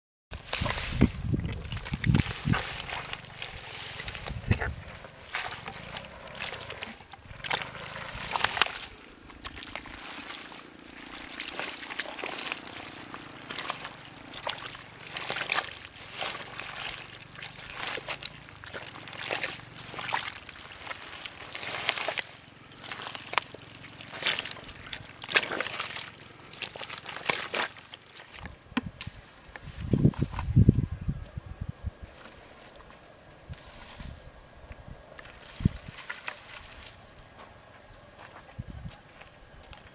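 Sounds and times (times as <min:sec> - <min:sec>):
hands churning wet mud: 0:00.3 - 0:28.9.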